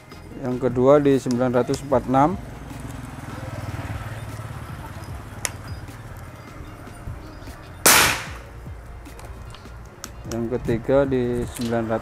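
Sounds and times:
air rifle shot: 0:07.9 - 0:08.5.

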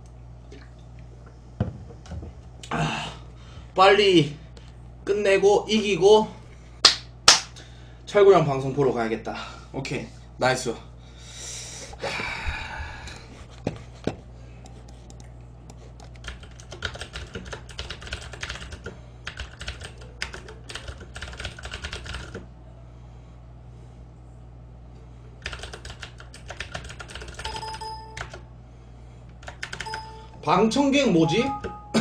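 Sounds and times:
low steady hum: 0:00.0 - 0:32.0
keyboard typing: 0:16.0 - 0:22.4, 0:25.4 - 0:28.4, 0:29.4 - 0:30.3
short electronic tone: 0:31.2 - 0:32.0.

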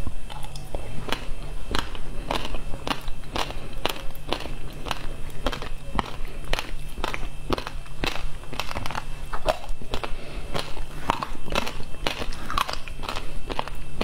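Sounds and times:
icy crunches of chewing: 0:00.3 - 0:14.0.

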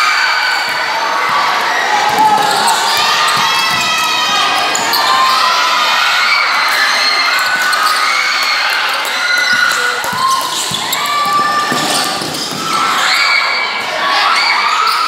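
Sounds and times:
crowd shouting and cheering: 0:00.0 - 0:15.0
ball bouncing on court floor: 0:02.1 - 0:04.9, 0:09.4 - 0:12.8.

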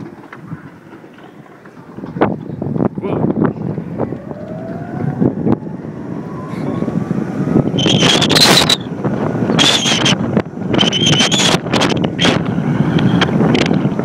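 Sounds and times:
wind and chairlift running noise: 0:00.0 - 0:14.0
faint rising whine: 0:03.6 - 0:08.9.

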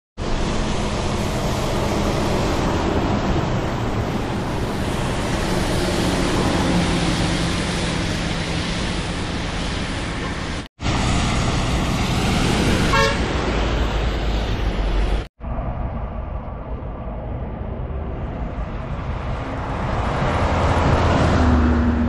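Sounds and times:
tyre spray hiss on wet road: 0:00.2 - 0:14.7
bus engine drone: 0:00.2 - 0:22.0
horn toot: 0:12.9 - 0:13.3.

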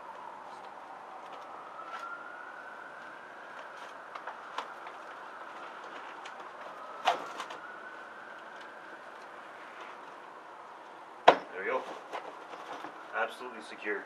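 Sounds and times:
distant siren wailing: 0:00.0 - 0:14.0.

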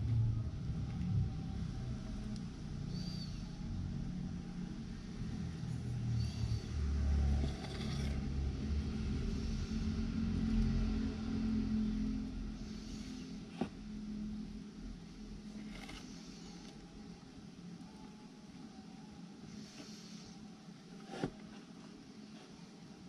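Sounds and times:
faint high chirps: 0:02.8 - 0:03.7.

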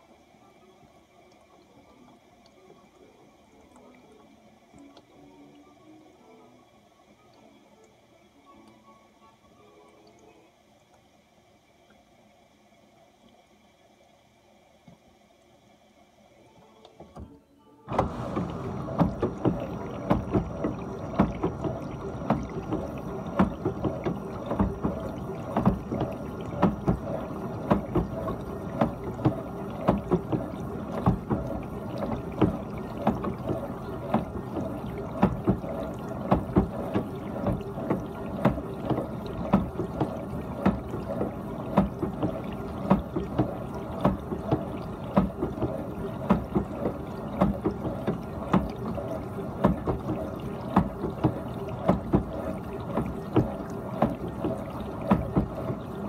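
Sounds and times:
dishwasher water spraying: 0:17.9 - 0:56.0
splashes and knocks in dishwasher: 0:17.9 - 0:56.0.

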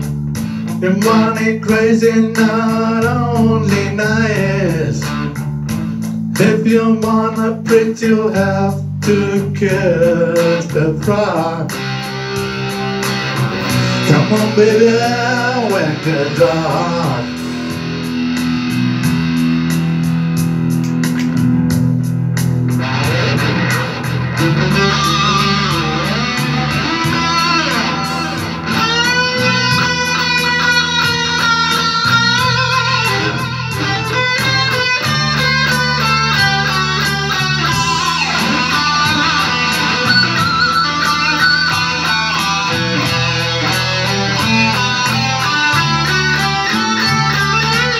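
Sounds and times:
electric guitar lead line: 0:00.0 - 0:47.9
rock backing track: 0:00.0 - 0:47.9.

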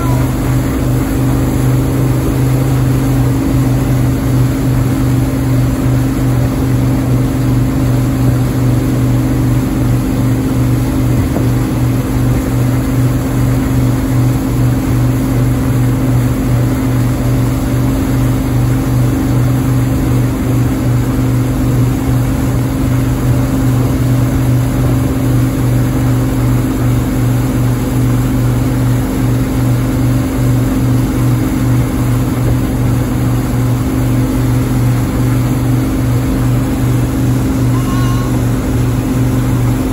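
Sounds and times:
boat engine droning: 0:00.0 - 0:39.9
water rushing in wake: 0:00.0 - 0:39.9.

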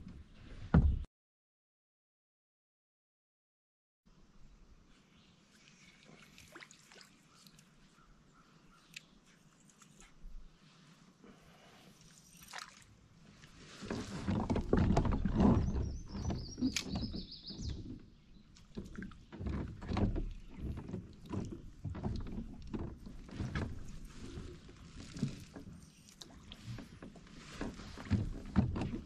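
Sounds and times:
water slapping against kayak hull: 0:13.4 - 0:29.0.

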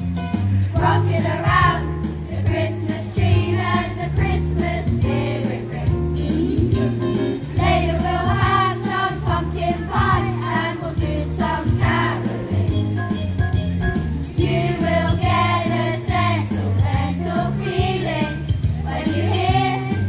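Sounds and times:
low bass line: 0:00.0 - 0:19.8
choir singing in unison: 0:07.6 - 0:12.7, 0:14.4 - 0:20.0.

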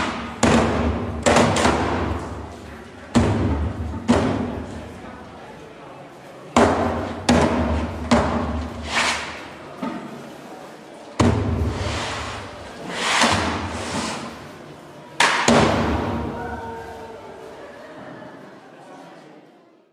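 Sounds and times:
heavy echoing thuds: 0:00.0 - 0:04.8.

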